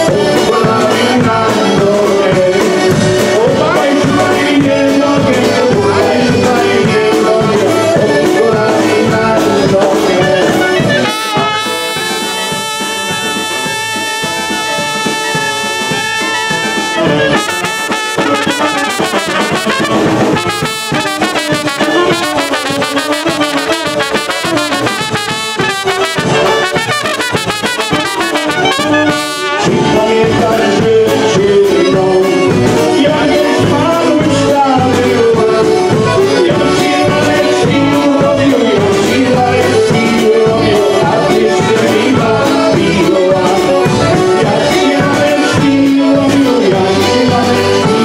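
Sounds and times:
man singing: 0.0 - 48.0
polka band playing: 0.0 - 48.0
horns playing melody: 9.6 - 30.3.

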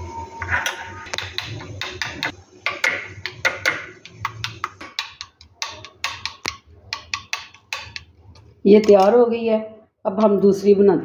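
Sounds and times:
metal spoon clinking in glass bowl: 1.2 - 8.1.

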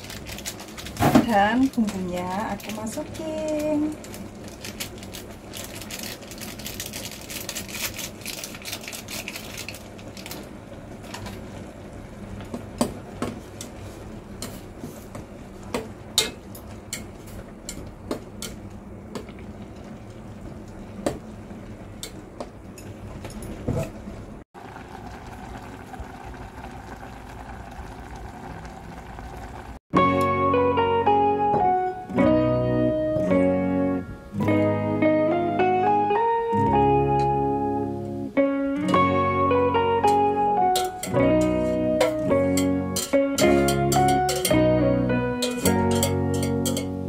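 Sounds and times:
boiling water bubbling: 0.0 - 29.8
chopsticks clinking against pot: 40.8 - 44.6, 45.4 - 47.0.

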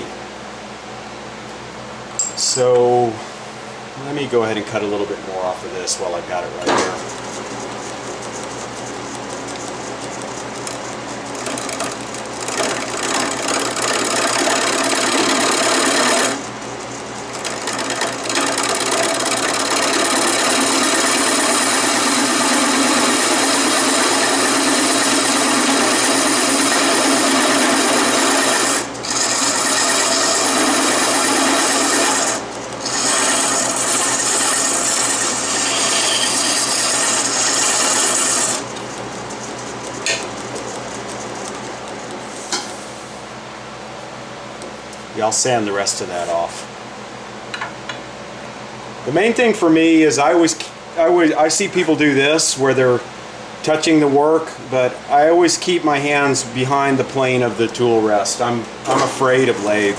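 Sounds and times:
lathe motor hum: 4.8 - 42.9
gouge cutting wood: 7.0 - 42.2.

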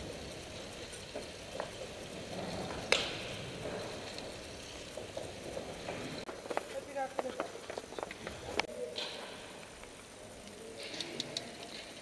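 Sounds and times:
bicycle tyres hissing on boards: 0.0 - 8.7.

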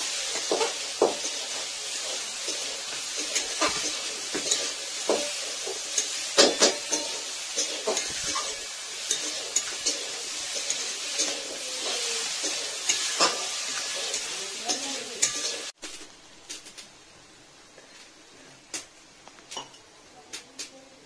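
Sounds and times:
metal spatula scraping: 0.0 - 16.0
curry sizzling in a wok: 0.0 - 21.0.

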